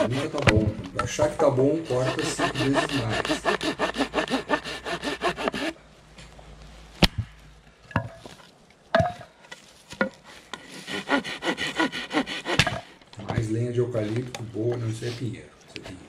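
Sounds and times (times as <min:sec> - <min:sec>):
hand saw cutting branch: 0:00.0 - 0:00.6, 0:01.7 - 0:05.8, 0:10.6 - 0:13.0.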